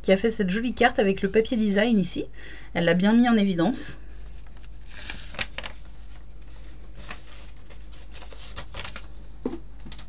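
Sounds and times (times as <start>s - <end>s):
paper and card rustling: 4.2s - 10.0s.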